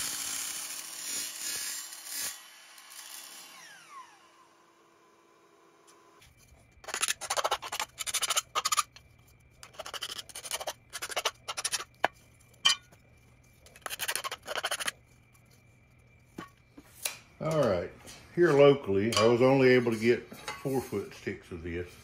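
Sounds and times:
file scraping metal: 6.8 - 9.0, 9.6 - 13.0, 13.6 - 15.0.

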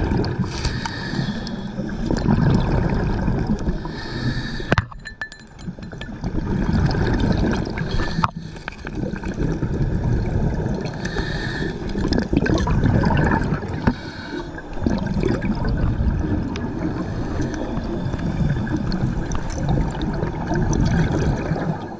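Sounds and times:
underwater water rumble: 0.0 - 21.9
underwater clicks and knocks: 4.7 - 9.6.

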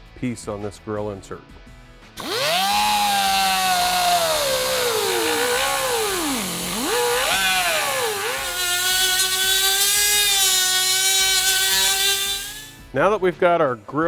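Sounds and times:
cut-off wheel whining through metal: 2.2 - 12.8.

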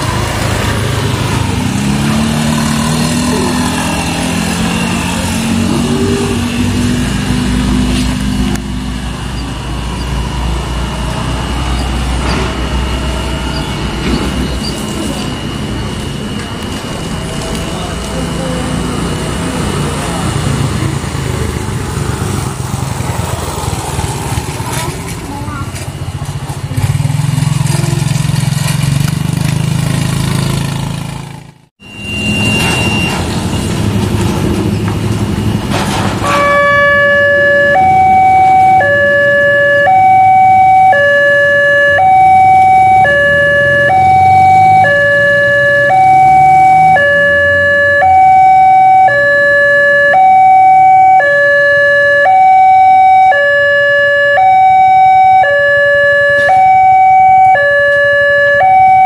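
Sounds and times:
vehicle engines in traffic: 0.0 - 59.0
level crossing two-tone alarm: 1.2 - 20.4, 31.8 - 33.3, 36.2 - 59.0.

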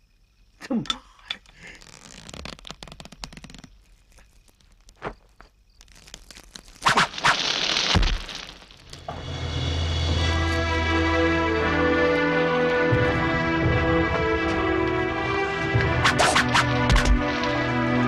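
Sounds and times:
fire crackling and snapping: 2.1 - 9.4, 12.1 - 17.9
flames flaring up with hissing rush: 5.9 - 10.1
music: 9.0 - 18.0.

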